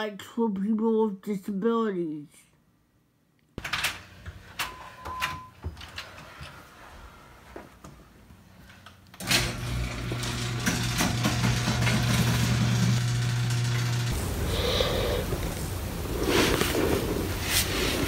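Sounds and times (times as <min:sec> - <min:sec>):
garage door motor humming: 0:09.1 - 0:16.0
rough rushing noise: 0:14.1 - 0:18.0.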